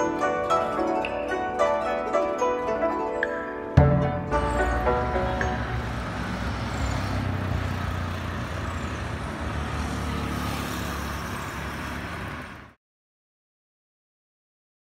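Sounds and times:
cars driving past: 3.8s - 12.8s.

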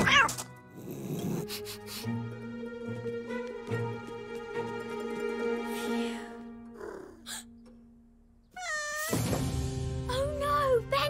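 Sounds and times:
cartoon soundtrack music: 8.5s - 11.0s.

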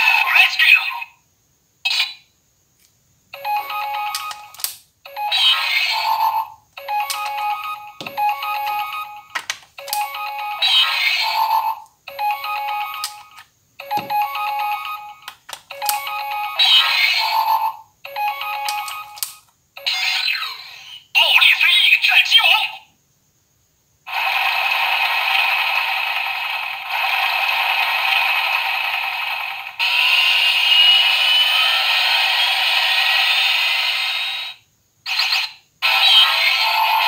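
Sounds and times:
toy electronic melody: 3.4s - 20.7s.

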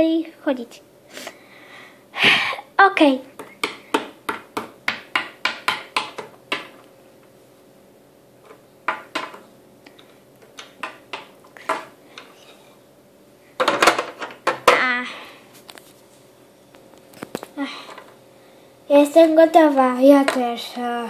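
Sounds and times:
plastic toys tapping on floor: 3.4s - 6.8s, 8.9s - 9.4s, 10.4s - 11.9s, 13.6s - 14.9s.

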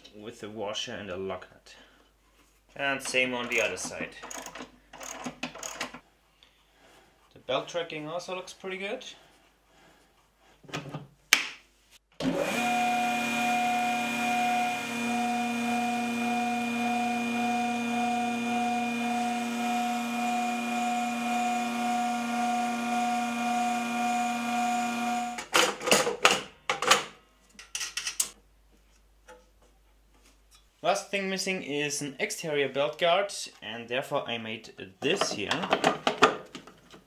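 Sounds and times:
electric motor humming: 12.2s - 25.4s
knocks and clatters: 35.0s - 37.0s.

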